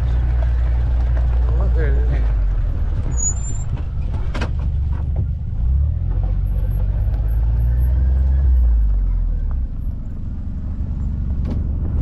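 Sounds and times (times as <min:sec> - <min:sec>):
rattle from bumpy ride: 0:00.0 - 0:07.0
vehicle engine droning: 0:00.0 - 0:12.0.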